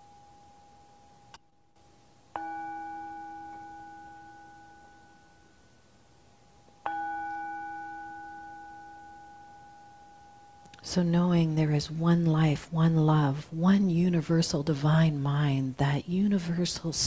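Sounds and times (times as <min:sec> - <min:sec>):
small bell ringing: 0:02.3 - 0:05.9, 0:06.8 - 0:10.8.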